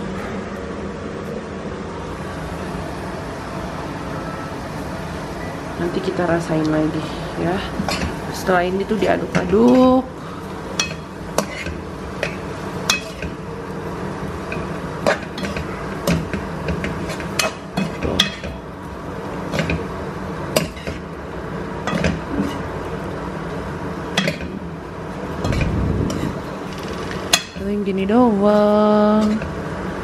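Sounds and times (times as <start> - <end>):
metal spatula scraping pan: 10.8 - 13.4, 21.9 - 22.7, 25.4 - 27.6.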